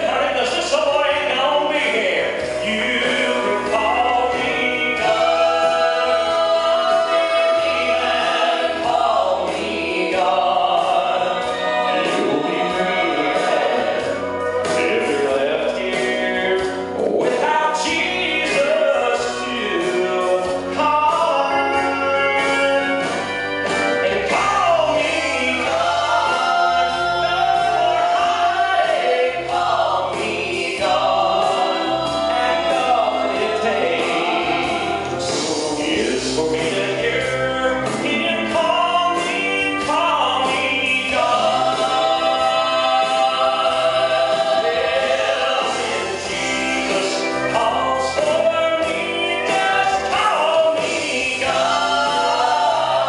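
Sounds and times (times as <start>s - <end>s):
instrumental accompaniment with bass: 0.0s - 53.0s
man singing lead: 0.0s - 53.0s
women singing harmony: 2.8s - 14.8s, 25.0s - 35.4s, 41.0s - 53.0s.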